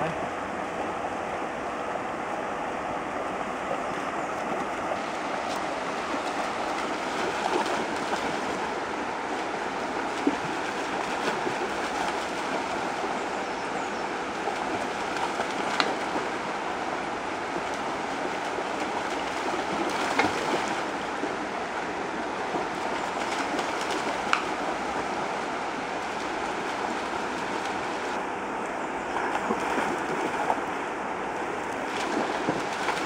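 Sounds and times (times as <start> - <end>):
river rushing over stones: 0.1 - 33.0
dog splashing through water: 17.5 - 21.4, 31.8 - 33.0.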